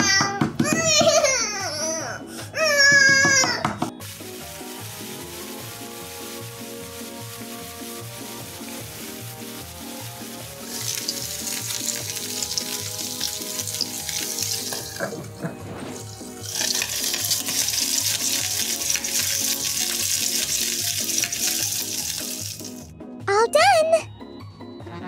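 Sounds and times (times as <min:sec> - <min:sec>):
light background music: 0:00.0 - 0:25.0
vegetables sizzling in a pan: 0:04.0 - 0:15.1, 0:15.9 - 0:22.9.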